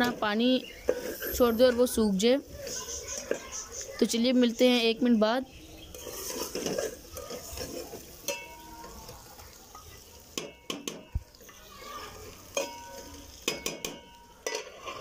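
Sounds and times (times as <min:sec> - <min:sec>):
meat sizzling in a pot: 0:00.0 - 0:15.0
metal ladle scraping a pot: 0:00.7 - 0:02.0, 0:05.8 - 0:10.0, 0:11.4 - 0:15.0.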